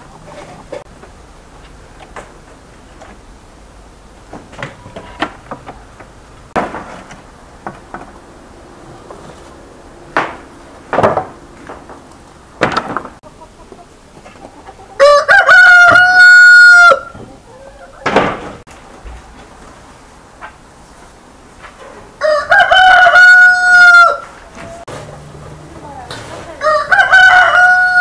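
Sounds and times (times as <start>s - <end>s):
sharp knocks and thuds: 4.3s - 8.2s, 10.1s - 13.2s.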